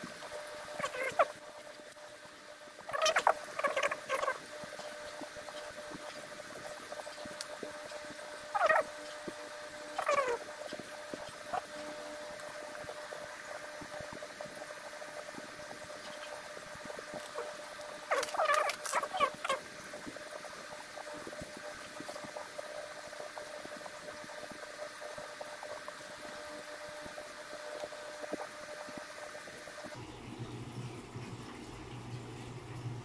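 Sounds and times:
faint steady hum: 0:00.0 - 0:33.0
animal crying: 0:00.8 - 0:01.3, 0:02.9 - 0:04.4, 0:08.5 - 0:09.2, 0:10.0 - 0:10.4, 0:17.2 - 0:19.7.

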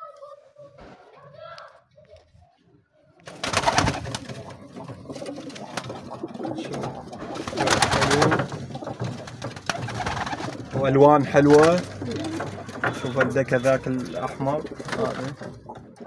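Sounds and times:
wings flapping and rustling: 0:03.2 - 0:16.0
pigeons cooing: 0:03.3 - 0:16.0.

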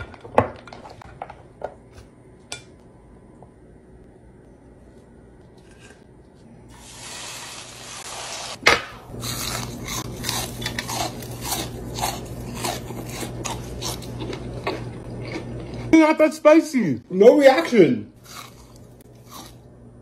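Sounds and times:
steady hiss: 0:06.7 - 0:08.6
crunchy chewing of onion ring: 0:09.1 - 0:16.0, 0:18.2 - 0:19.7.

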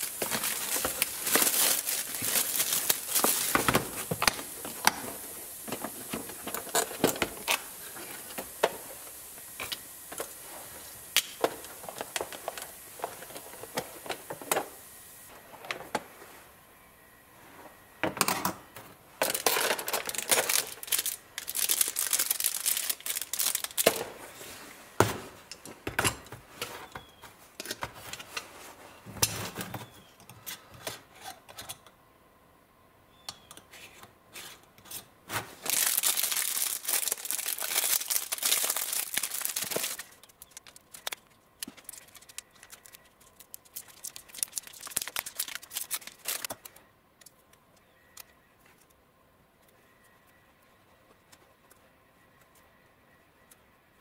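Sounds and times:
plastic packaging crinkling: 0:00.0 - 0:14.3, 0:19.2 - 0:24.1, 0:35.5 - 0:47.6.

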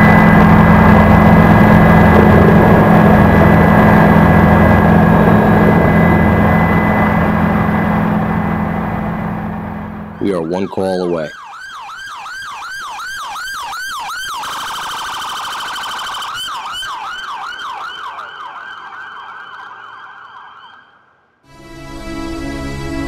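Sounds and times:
police siren yelp and warble: 0:00.0 - 0:21.1
music: 0:21.5 - 0:23.0.

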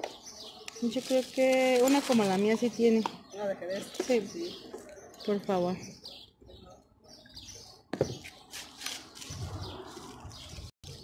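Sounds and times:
plastic bag rustling and crinkling: 0:00.8 - 0:02.6.

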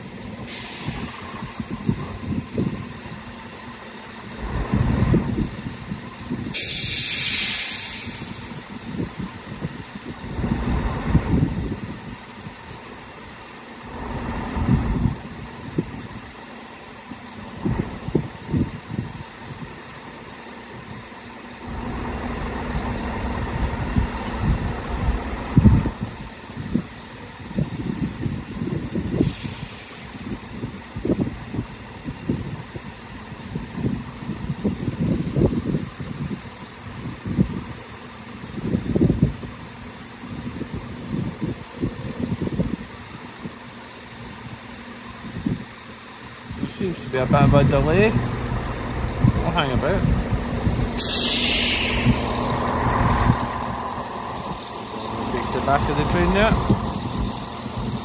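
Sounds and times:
diesel train engine rumbling: 0:00.0 - 0:58.0
loud air hiss: 0:00.3 - 0:02.6, 0:06.5 - 0:08.8, 0:29.1 - 0:30.5, 0:48.8 - 0:58.0.

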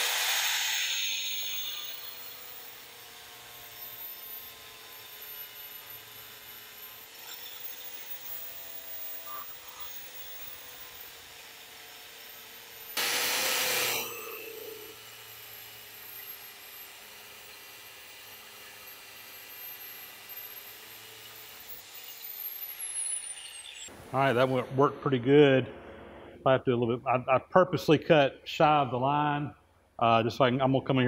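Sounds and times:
angle grinder cutting metal pipe: 0:00.0 - 0:24.6
harsh burst of cutting noise: 0:00.0 - 0:24.7.

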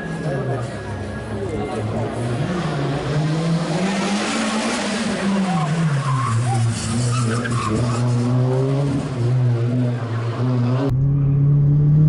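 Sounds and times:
car engine revving: 0:01.8 - 0:12.0
tyres squealing: 0:05.5 - 0:08.2.

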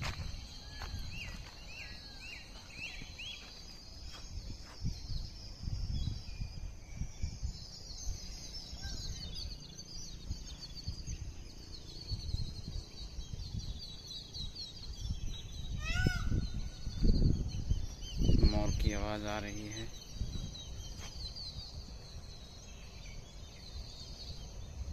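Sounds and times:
small birds chirping: 0:00.0 - 0:24.9
low microphone rumble: 0:02.7 - 0:24.9
loud ringing bird call: 0:15.6 - 0:17.0.

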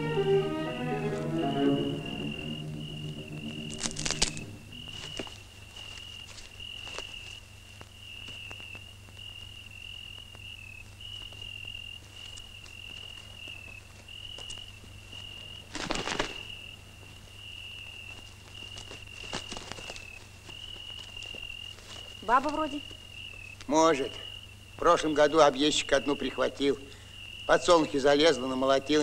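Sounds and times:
insect trill: 0:00.1 - 0:29.0
rustle of stalks and leaves: 0:03.1 - 0:24.4.

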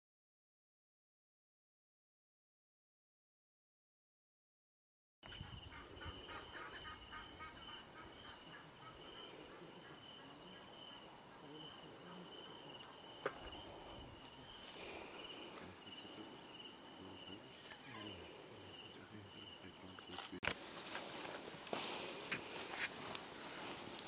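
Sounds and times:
high insect trill: 0:05.3 - 0:24.0.

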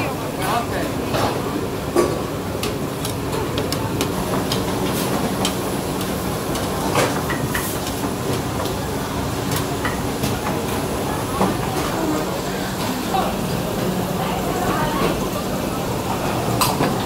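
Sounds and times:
busy kitchen rumble: 0:00.0 - 0:17.0.

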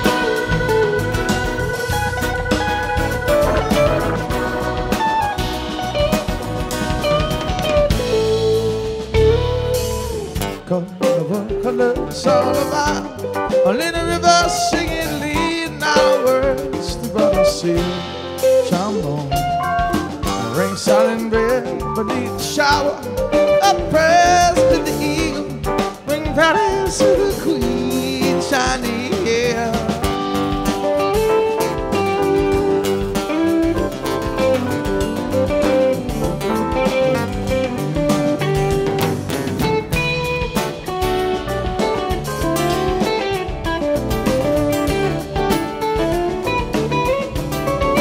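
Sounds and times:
bass guitar: 0:00.0 - 0:48.0
drum kit: 0:00.0 - 0:48.0
electric guitar lead: 0:00.0 - 0:48.0.

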